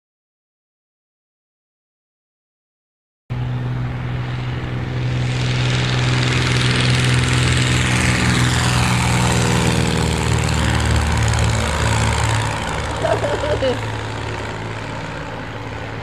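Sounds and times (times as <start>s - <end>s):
light plane engine and propeller: 3.3s - 16.0s.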